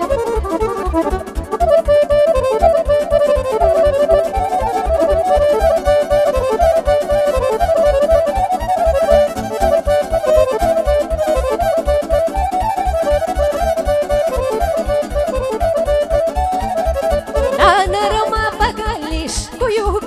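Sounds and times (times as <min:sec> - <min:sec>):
quick bass beat: 0:00.0 - 0:15.0
violin melody: 0:00.0 - 0:19.6
accordion: 0:00.0 - 0:20.0.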